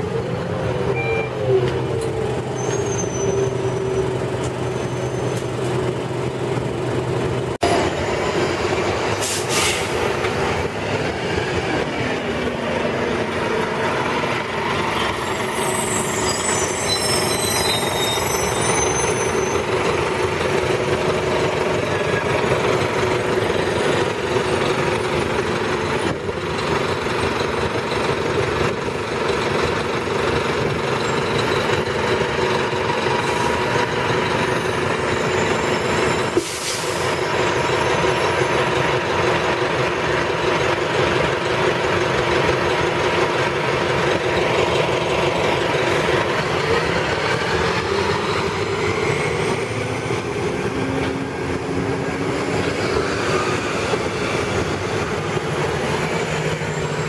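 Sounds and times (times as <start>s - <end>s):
bus engine idling: 0.0s - 57.0s
high squeal: 2.3s - 5.7s, 14.8s - 20.0s, 34.3s - 38.5s, 47.3s - 57.0s
short sharp hiss: 9.2s - 10.0s.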